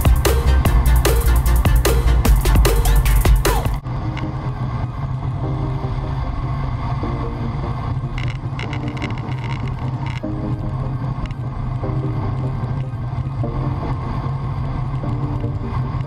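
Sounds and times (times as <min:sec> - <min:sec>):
faint hum: 0:03.5 - 0:16.0
bike tyres on asphalt: 0:07.7 - 0:16.0.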